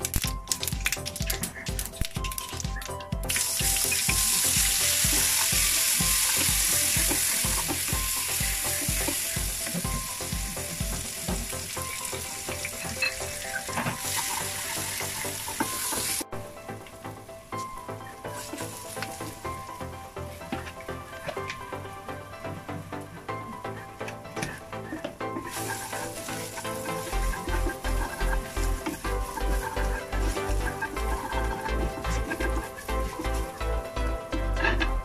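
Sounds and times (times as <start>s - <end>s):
background music with steady beat: 0.0s - 35.0s
food sizzling in hot oil: 0.1s - 16.3s, 18.3s - 20.2s, 25.4s - 33.7s
wooden spatula stirring: 25.0s - 33.9s.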